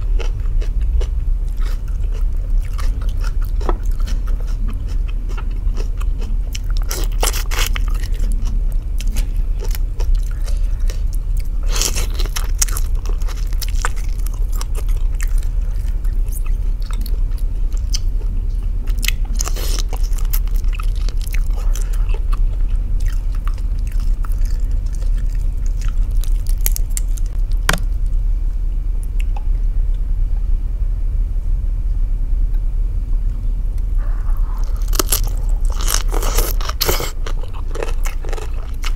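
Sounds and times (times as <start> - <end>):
steady low hum: 0.0 - 38.9
chewing and biting: 0.1 - 27.9, 34.6 - 38.9
crisp crunches: 34.6 - 38.9.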